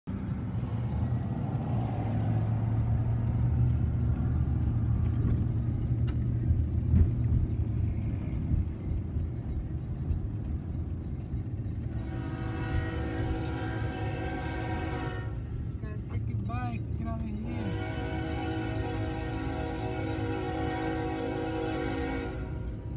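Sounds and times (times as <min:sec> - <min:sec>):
car engine and road rumble: 0:00.1 - 0:22.9
locomotive air horn: 0:11.9 - 0:15.6, 0:17.4 - 0:22.9.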